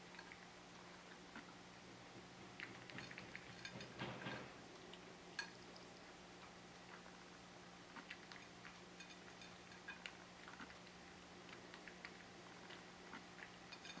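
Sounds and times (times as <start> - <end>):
small clicks on metal bowl: 13.7 - 14.0.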